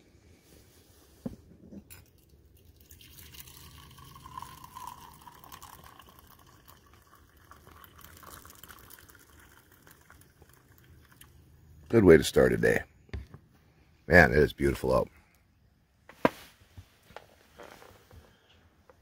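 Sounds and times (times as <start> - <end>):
coffee pouring into a mug: 1.8 - 11.8.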